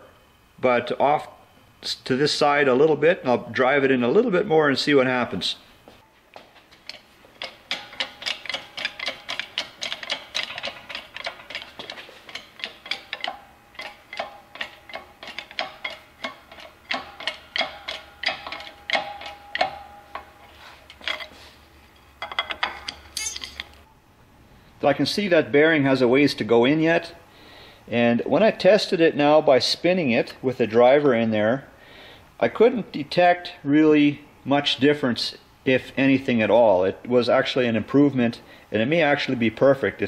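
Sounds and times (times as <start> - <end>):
shop press rapid clicking: 7.4 - 19.8.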